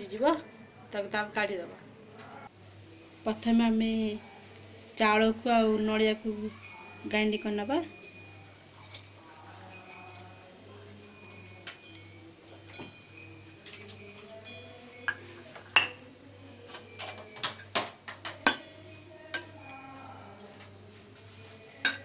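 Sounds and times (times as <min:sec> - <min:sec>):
steel bowl clinking on jar: 0:07.9 - 0:16.1.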